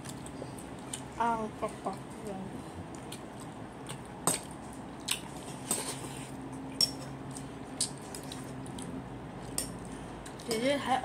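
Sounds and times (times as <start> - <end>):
wet chewing: 2.9 - 10.6.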